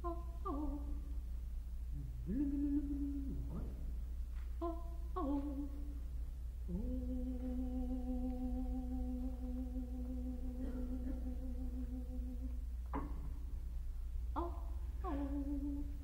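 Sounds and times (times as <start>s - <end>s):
low steady drone: 0.0s - 16.0s
man humming: 2.0s - 3.9s, 6.7s - 13.2s.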